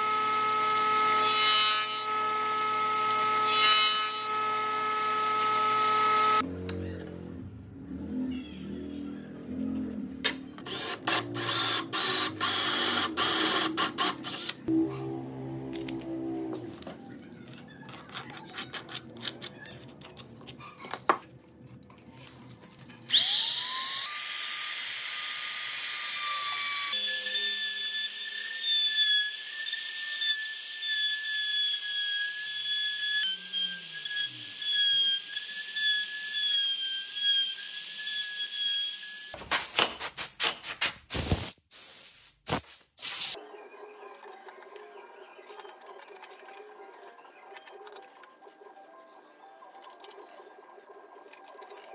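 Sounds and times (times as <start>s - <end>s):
router whining while cutting wood: 0.0s - 6.4s, 23.1s - 39.4s.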